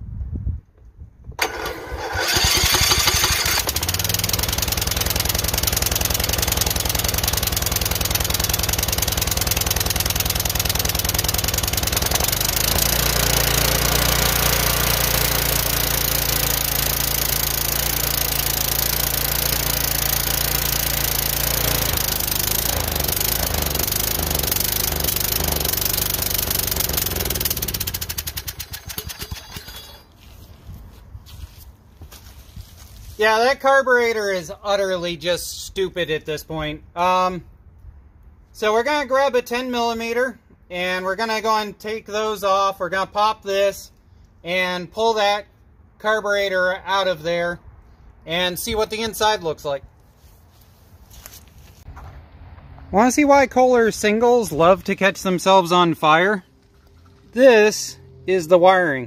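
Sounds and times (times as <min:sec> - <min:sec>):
single-cylinder engine running: 0:01.4 - 0:30.1, 0:56.5 - 0:58.6.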